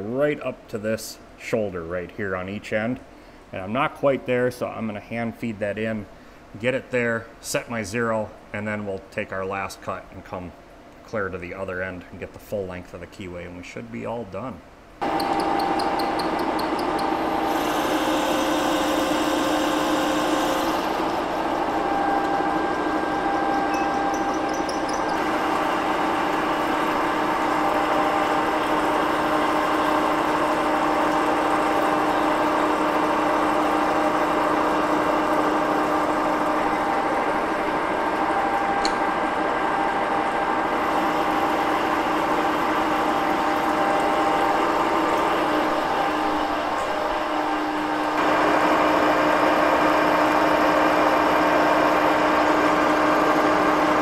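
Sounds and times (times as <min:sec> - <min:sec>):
milling machine humming: 0:15.0 - 0:54.0.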